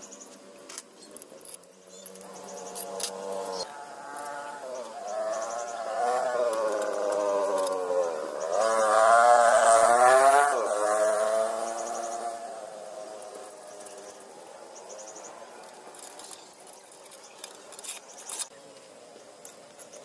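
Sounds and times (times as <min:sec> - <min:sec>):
faint insect chirps: 0:00.0 - 0:09.8, 0:11.6 - 0:20.0
motorcycle passing by: 0:02.2 - 0:15.9.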